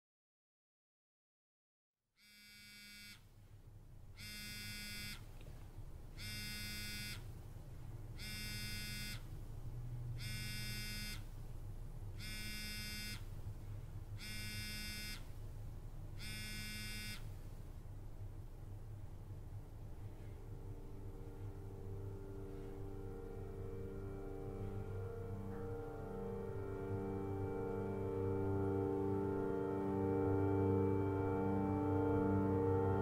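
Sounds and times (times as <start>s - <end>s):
smartphone vibrating on table: 2.2s - 3.2s, 4.2s - 5.2s, 6.2s - 7.3s, 8.2s - 9.2s, 10.2s - 11.3s, 12.2s - 13.3s, 14.2s - 15.3s, 16.2s - 17.3s.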